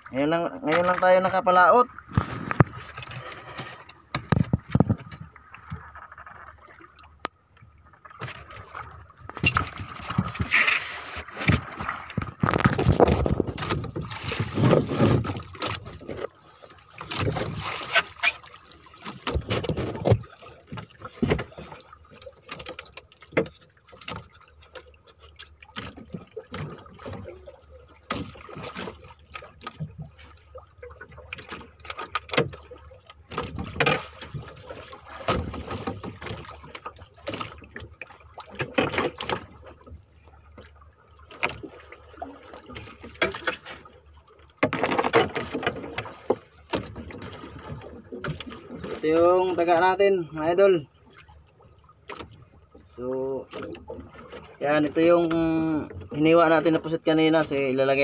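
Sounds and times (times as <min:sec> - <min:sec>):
thumps against boat hull: 0:04.1 - 0:05.8, 0:19.2 - 0:21.5.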